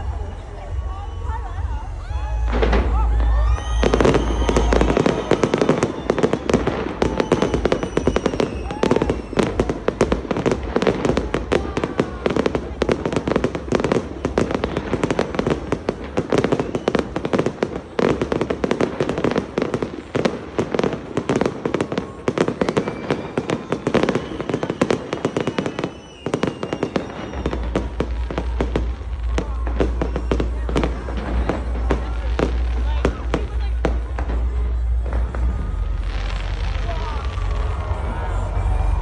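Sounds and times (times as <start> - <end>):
fireworks bangs and crackles: 0.0 - 39.0
low rumble: 28.1 - 39.0.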